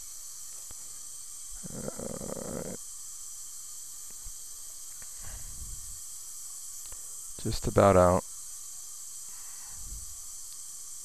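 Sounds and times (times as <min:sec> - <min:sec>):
steady high hiss: 0:00.0 - 0:11.0
person breathing out: 0:09.3 - 0:10.1.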